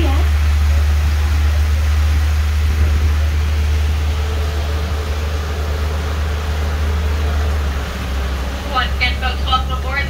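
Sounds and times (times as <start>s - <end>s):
tram running: 0.0s - 10.0s.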